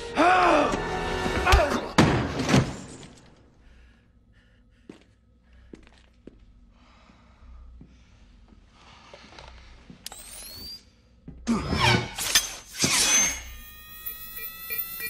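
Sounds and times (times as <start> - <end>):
electronic beeping: 13.0 - 15.0.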